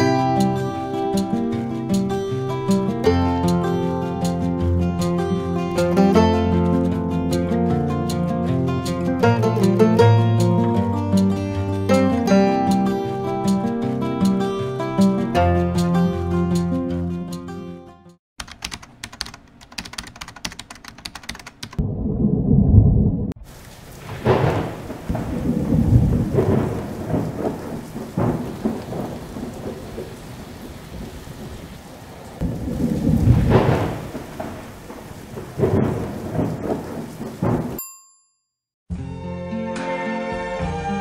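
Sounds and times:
thunder rolling: 21.8s - 37.8s
heavy rain: 22.2s - 37.8s.

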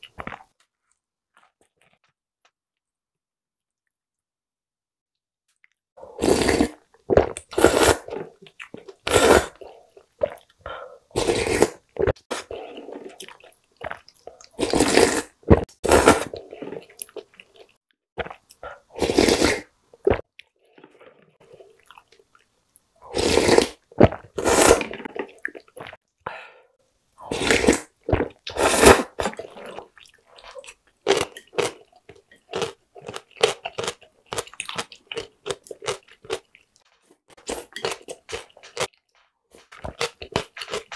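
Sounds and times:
slurping noodles: 6.0s - 22.0s, 23.0s - 26.0s, 27.2s - 31.8s.

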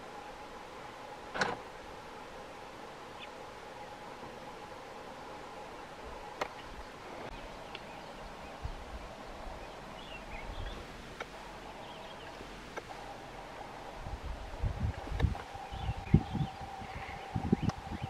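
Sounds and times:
insect drone: 0.0s - 18.0s
faint bird chirps: 15.5s - 18.0s.

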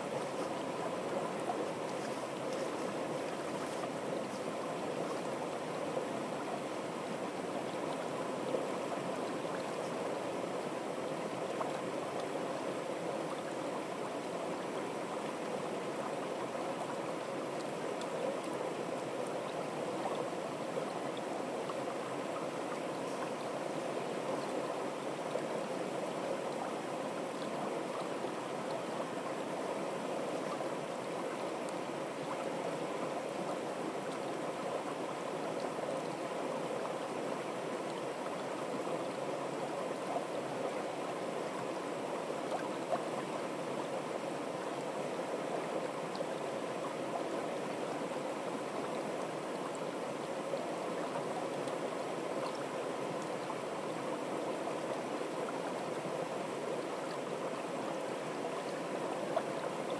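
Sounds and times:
river water rushing over rocks: 0.0s - 59.9s.

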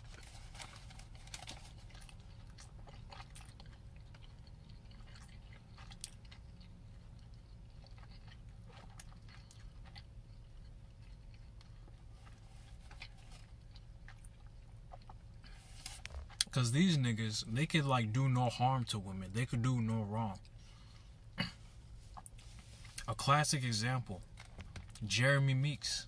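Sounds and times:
person chewing crunchy food: 0.0s - 16.5s
faint low hum: 0.0s - 26.0s.

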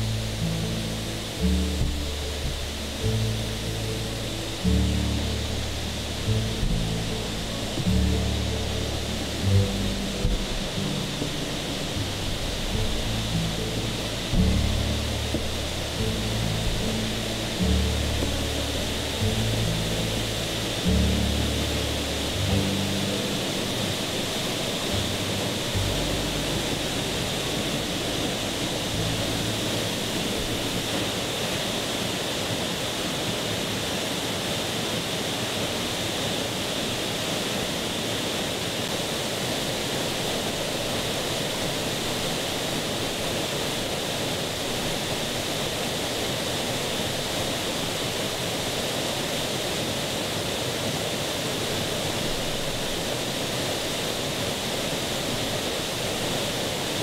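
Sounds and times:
background music: 0.0s - 31.2s
waterfall rushing: 0.0s - 57.0s.

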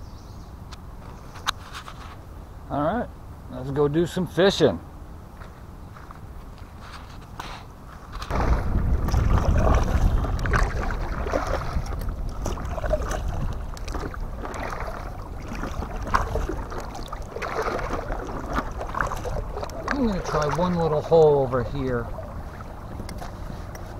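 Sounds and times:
low steady rumble: 7.8s - 23.9s
water splashing around kayak: 8.2s - 23.9s.

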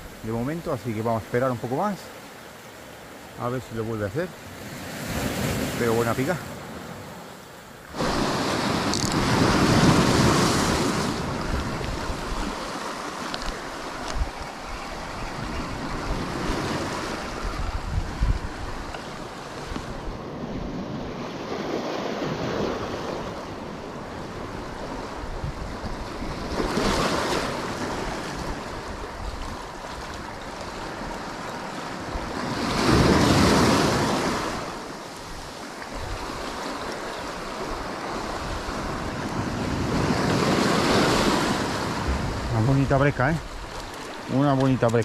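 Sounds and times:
sea waves breaking on shore: 0.0s - 45.0s
wind buffeting microphone: 8.0s - 34.4s, 37.4s - 45.0s.

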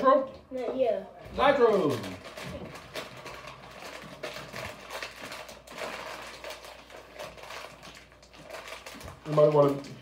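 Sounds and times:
chip bag crinkling: 1.5s - 10.0s.

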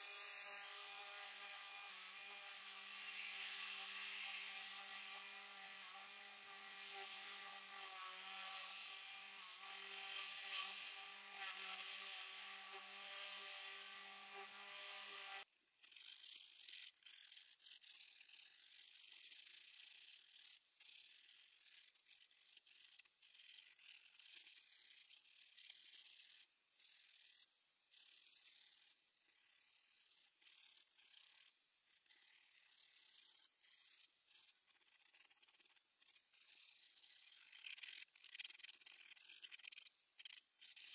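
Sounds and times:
electric power tool running: 0.0s - 15.4s
sandpaper scratching on wood: 0.1s - 15.4s, 16.0s - 39.9s.

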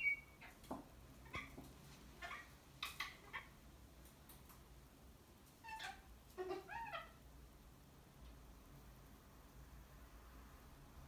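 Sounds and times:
parrots calling quietly: 0.0s - 3.6s, 5.5s - 7.3s.

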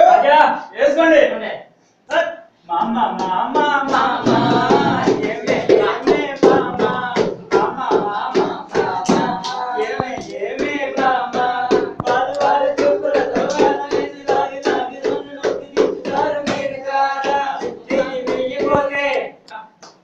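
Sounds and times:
voices singing: 2.7s - 19.8s
hand clapping: 3.9s - 19.2s.

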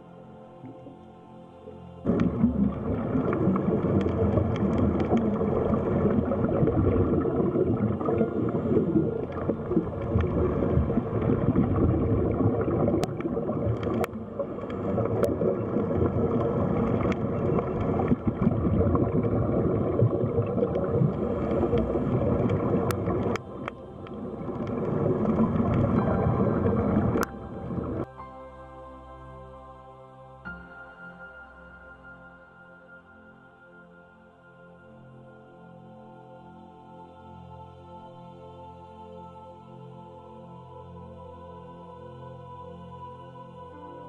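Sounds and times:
underwater rushing water: 2.0s - 28.1s.

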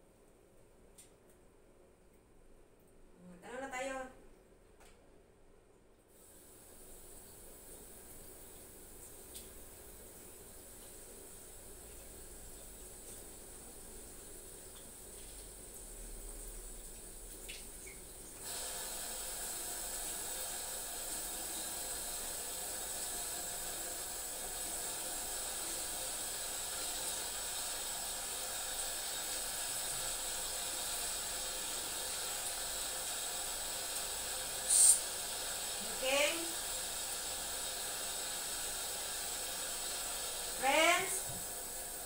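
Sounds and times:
tap water running into sink: 6.2s - 42.0s
sharp burst of noise: 34.7s - 35.0s.

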